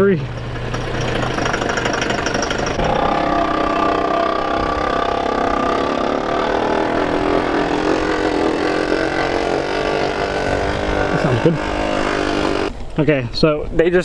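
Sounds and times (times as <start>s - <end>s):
engine droning steadily: 0.0s - 12.8s.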